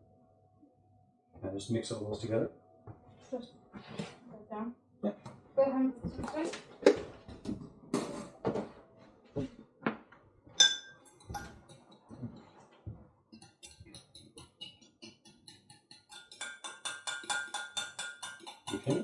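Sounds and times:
fork clinking against glass jug: 10.6s - 11.9s, 13.4s - 19.0s.

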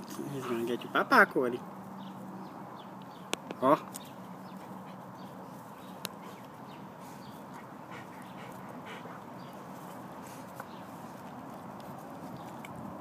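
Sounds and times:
dogs play-fighting: 4.3s - 12.8s.

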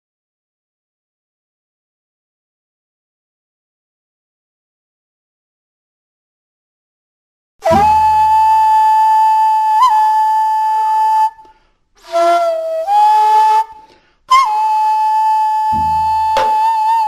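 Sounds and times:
wind instrument long notes: 7.6s - 11.4s, 12.0s - 17.0s
sharp tap: 15.7s - 16.7s
low drum stroke: 15.7s - 16.8s.

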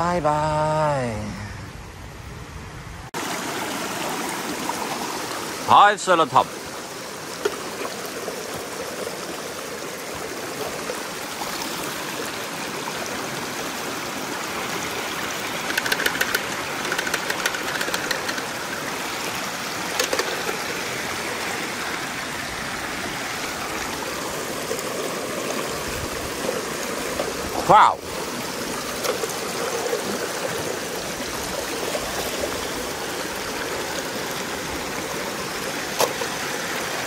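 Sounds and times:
stream water running over rock: 3.2s - 37.0s
rapid clicking: 15.6s - 18.6s.

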